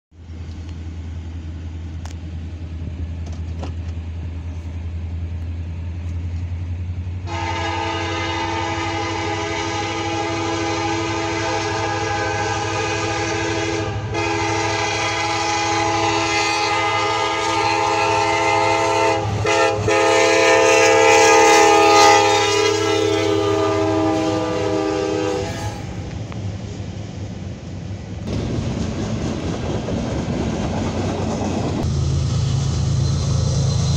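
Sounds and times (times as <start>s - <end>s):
train rumble: 0.1s - 33.9s
diesel locomotive horn: 7.2s - 26.2s.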